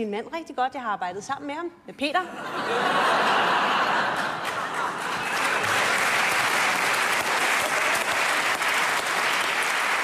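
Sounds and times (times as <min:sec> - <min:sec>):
audience applauding: 0:03.4 - 0:10.0.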